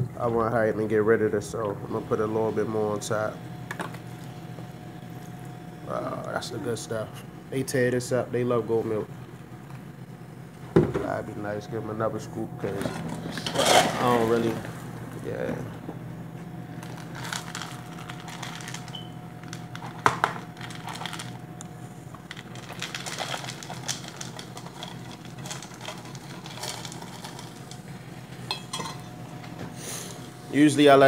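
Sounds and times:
steady low hum: 0.0 - 31.0
kibble rattling into bowls: 16.9 - 21.4, 22.3 - 27.8.

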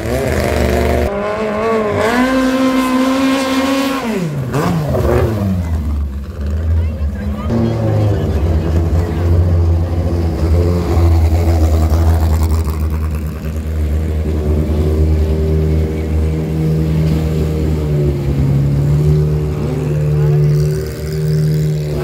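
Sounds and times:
boat engines speeding past: 0.0 - 22.0.

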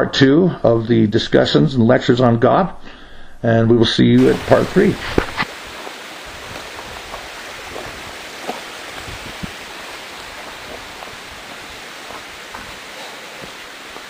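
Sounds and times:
rushing outdoor noise: 4.2 - 14.0.

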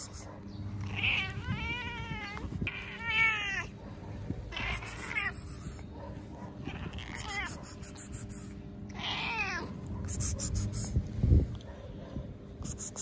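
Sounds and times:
cat meowing: 0.8 - 3.7, 4.5 - 5.4, 6.6 - 7.6, 8.9 - 9.8.

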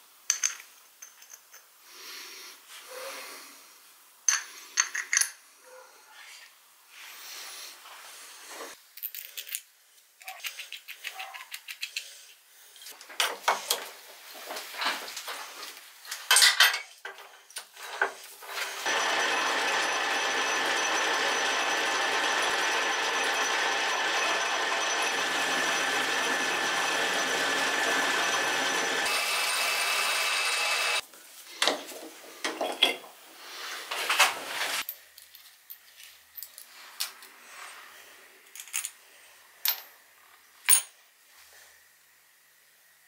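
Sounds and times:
metal lathe running: 18.5 - 31.0.

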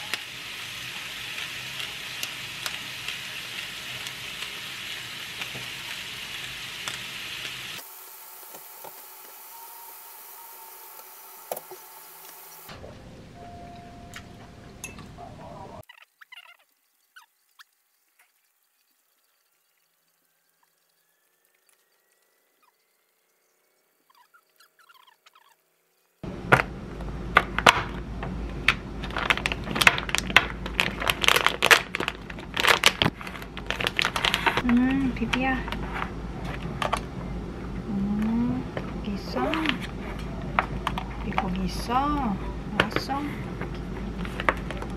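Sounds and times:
meat sizzling in a frying pan: 0.0 - 12.7
plastic packaging crinkling: 29.0 - 34.9.

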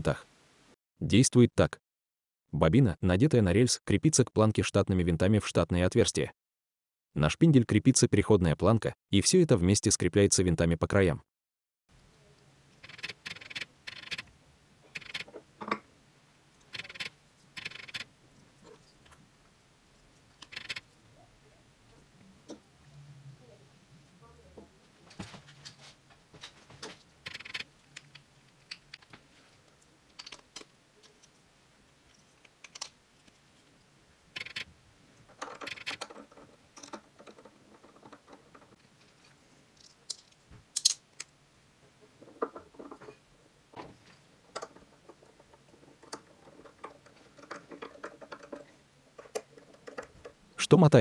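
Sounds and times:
clicks of small plastic parts: 29.8 - 31.4, 32.1 - 33.4, 35.3 - 41.3.

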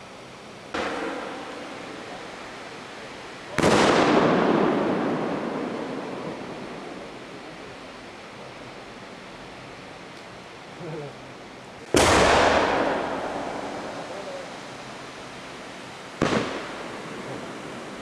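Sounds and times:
firework bang echoing: 0.7 - 2.6, 3.5 - 7.3, 11.9 - 14.6, 16.2 - 17.6.

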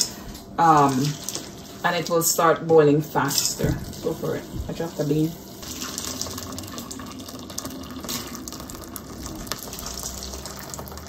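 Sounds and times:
hot water pouring into pot: 5.5 - 11.0.

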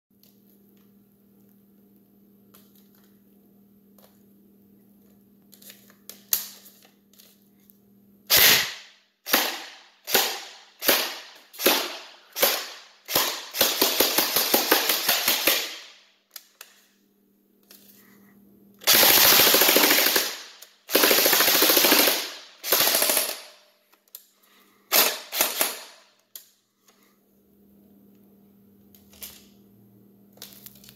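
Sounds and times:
airsoft gun single shots: 8.3 - 13.5
airsoft gun full-auto bursts: 8.3 - 16.0, 18.8 - 23.6, 24.9 - 26.1.

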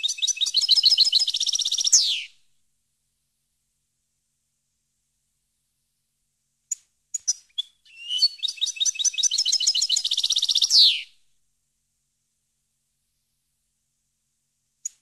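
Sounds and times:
bird singing: 0.0 - 2.4, 7.2 - 11.1.

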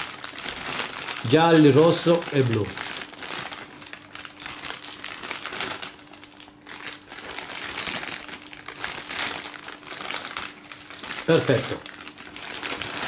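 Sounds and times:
plastic bag crinkling: 0.0 - 13.0.

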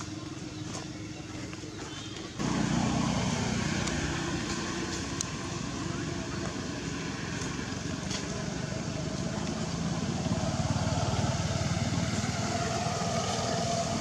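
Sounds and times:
motor engine running: 0.0 - 14.0.

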